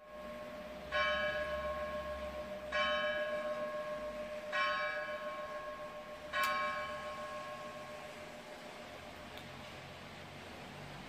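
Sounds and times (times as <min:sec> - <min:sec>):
church bell tolling: 0:00.0 - 0:08.8.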